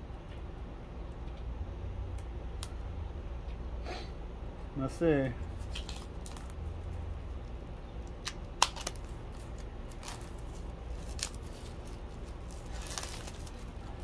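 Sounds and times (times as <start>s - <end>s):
plastic packaging crackling: 5.5s - 6.7s, 7.6s - 14.0s.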